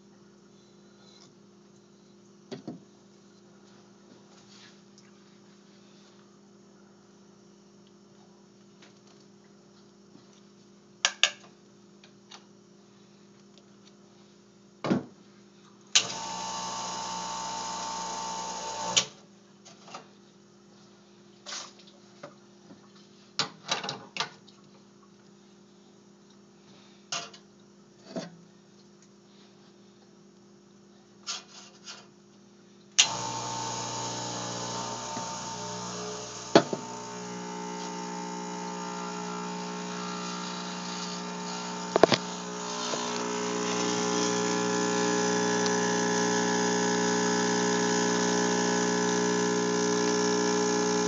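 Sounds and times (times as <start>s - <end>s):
espresso machine pump running: 16.0s - 19.2s, 33.0s - 51.0s
portafilter and cup knocks: 36.6s - 36.9s.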